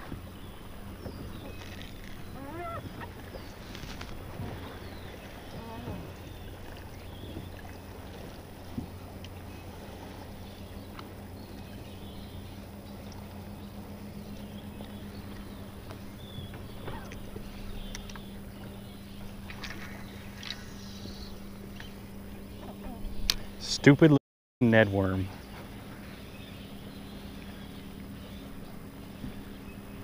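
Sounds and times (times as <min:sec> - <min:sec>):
electric trolling motor humming: 0:00.0 - 0:23.4
faint wavering calls: 0:01.5 - 0:07.4.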